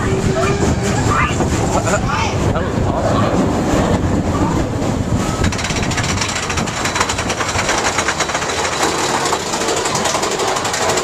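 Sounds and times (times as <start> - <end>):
roller coaster rumbling on track: 0.0 - 11.0
fast clattering rattle: 5.4 - 11.0.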